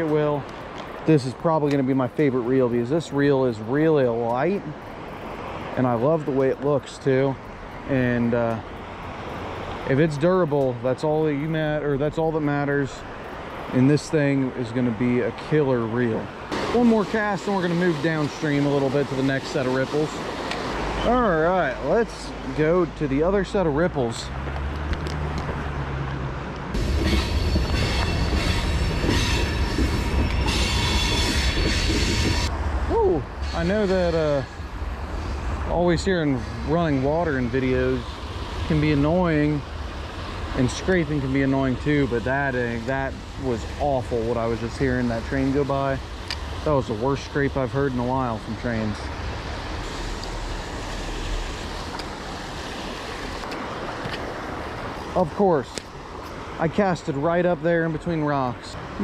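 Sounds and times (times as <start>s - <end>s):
water rushing over rocks: 15.6s - 23.9s
train rumbling on rails: 16.4s - 21.1s, 26.6s - 55.1s
train wheels squealing on track: 26.8s - 35.4s.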